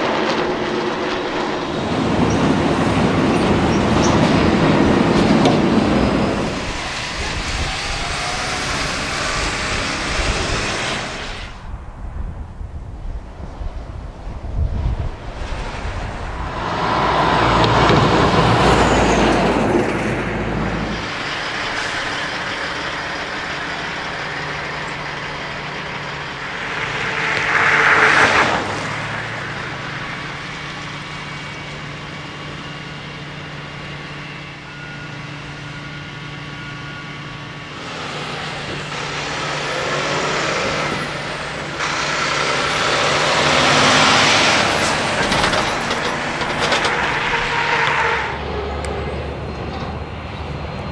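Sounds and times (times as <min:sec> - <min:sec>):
truck passing loudly: 0:00.0 - 0:11.8, 0:14.5 - 0:50.9
truck engine running: 0:15.5 - 0:28.1, 0:28.8 - 0:50.9.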